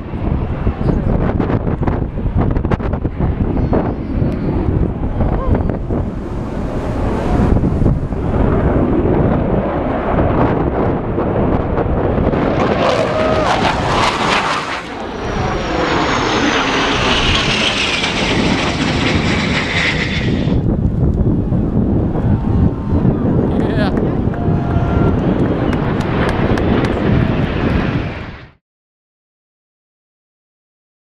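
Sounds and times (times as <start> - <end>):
jet aircraft flying overhead: 0.0 - 28.6.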